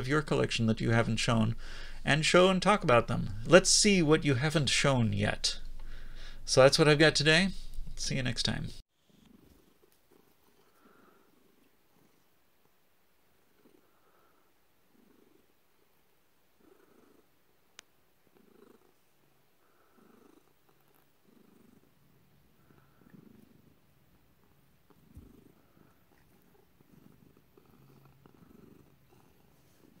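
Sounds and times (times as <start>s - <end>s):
cat purring: 9.0s - 30.0s.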